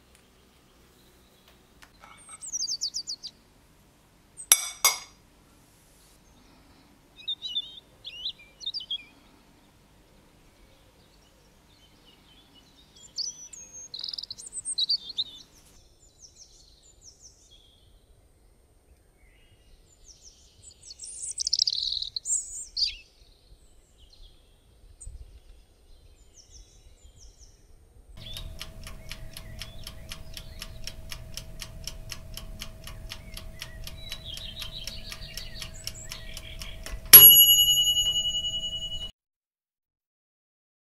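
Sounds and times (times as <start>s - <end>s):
small birds chirping and singing: 0.0s - 3.4s, 6.2s - 37.2s
fast even ticking: 28.2s - 39.1s
steady tone: 28.2s - 39.1s.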